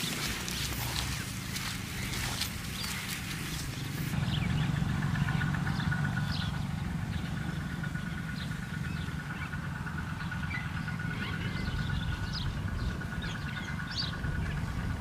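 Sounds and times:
bird chirps: 0.0 - 14.8.

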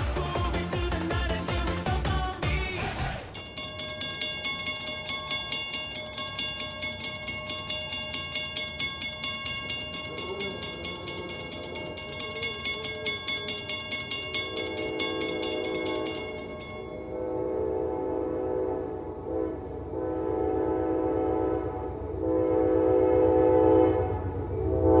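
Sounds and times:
railroad crossing bell ringing: 3.3 - 17.4
train horn: 14.4 - 25.0.

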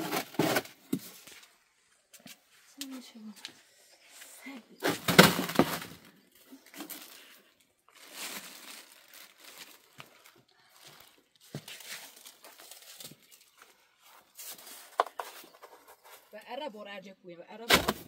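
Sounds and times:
material rustling and crinkling: 7.9 - 16.4.

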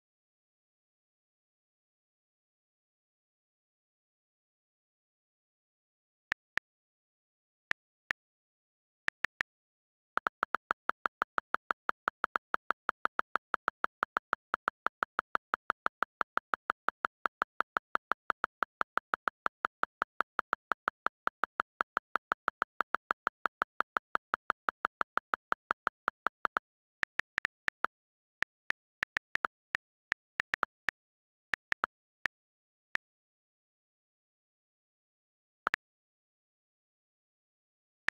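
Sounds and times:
on-screen keyboard clicks: 10.2 - 31.0.

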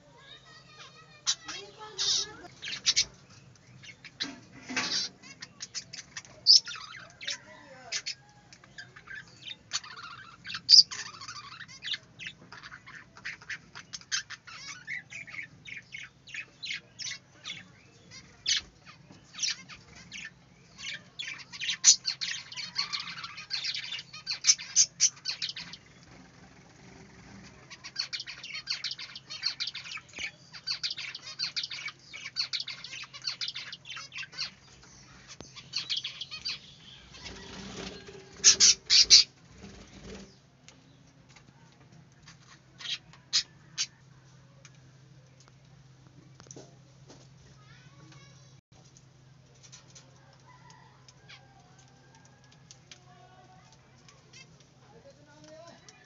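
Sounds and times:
budgerigars chirping: 1.3 - 8.2, 8.8 - 25.9, 27.7 - 40.4.

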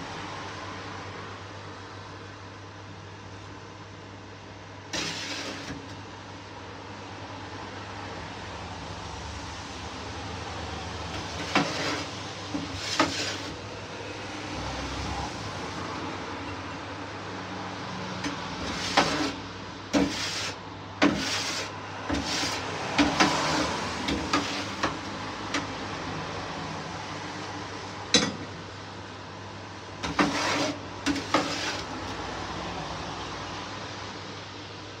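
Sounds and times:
steady mechanical hum: 0.0 - 35.0
metal spatula scraping steel tray: 4.9 - 5.9, 11.1 - 13.7, 18.2 - 25.7, 30.0 - 32.2.

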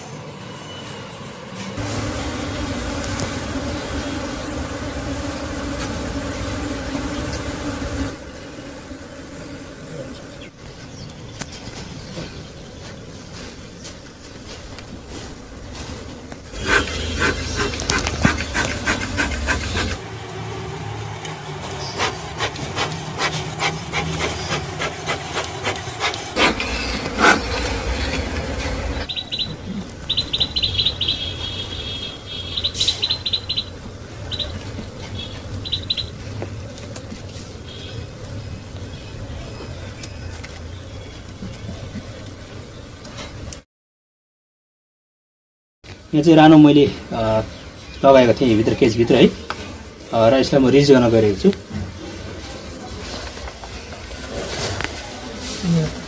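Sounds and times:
wood rubbing and scraping: 12.8 - 20.0, 21.6 - 29.1.

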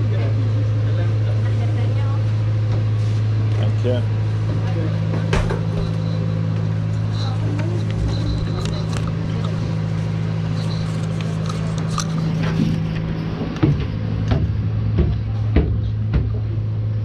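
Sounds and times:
low machinery hum: 0.0 - 17.0
footsteps on metal stairs: 12.2 - 16.6.

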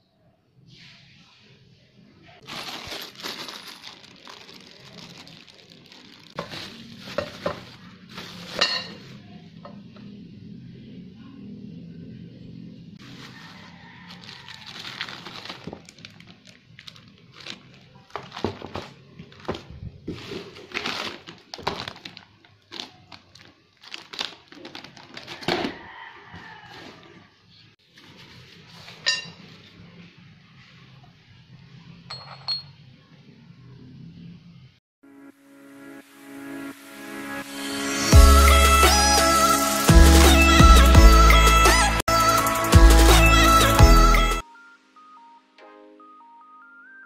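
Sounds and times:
bubble wrap and plastic crinkling: 2.4 - 9.2, 13.0 - 25.8
metal parts clinking: 2.5 - 4.4.

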